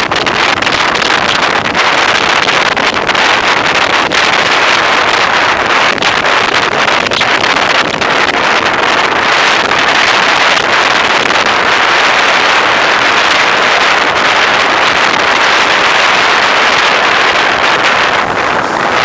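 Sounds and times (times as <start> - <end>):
wind rushing over microphone: 0.0 - 19.0.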